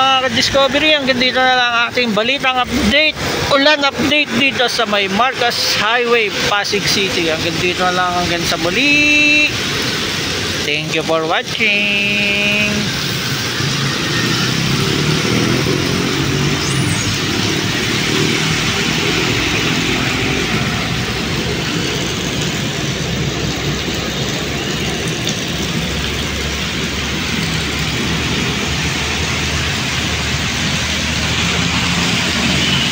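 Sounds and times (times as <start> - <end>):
highway traffic on wet road: 0.0 - 32.9
rain on wet road: 6.3 - 32.9
water dripping: 6.7 - 32.9
low engine hum: 13.4 - 32.9.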